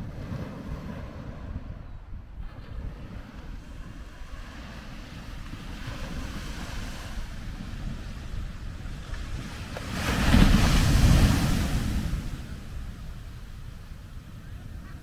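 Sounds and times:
surf rumbling: 0:00.0 - 0:15.0
wave breaking and foam rushing: 0:02.4 - 0:13.6.

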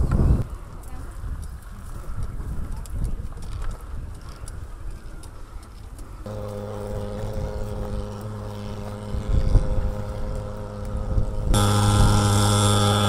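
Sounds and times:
fogging machine engine drone: 0:06.3 - 0:13.0.

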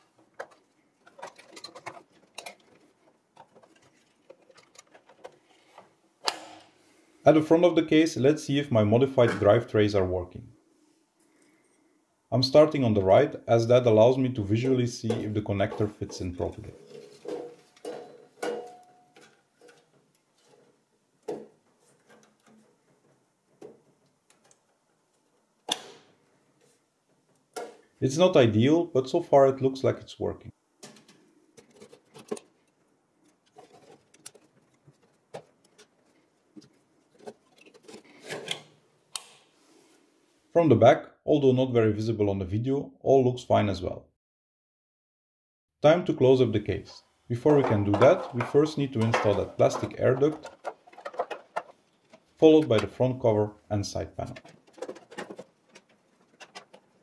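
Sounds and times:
plastic clicks and knocks: 0:00.0 - 0:05.4, 0:47.5 - 0:53.0, 0:54.2 - 0:57.0.

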